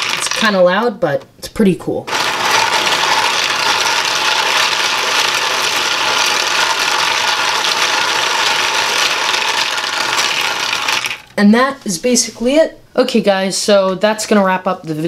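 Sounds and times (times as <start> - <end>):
steel pellets rattling on plastic tracks: 0.0 - 0.6, 2.1 - 11.3.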